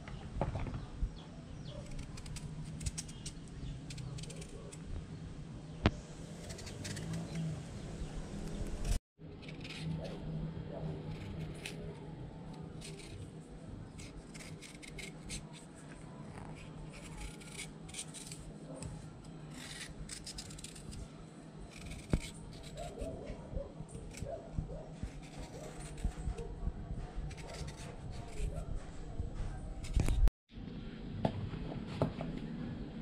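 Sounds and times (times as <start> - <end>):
knife slicing carrot: 1.8 - 4.8, 6.3 - 7.6, 13.9 - 15.8, 16.4 - 21.1, 21.7 - 23.2, 24.0 - 30.3.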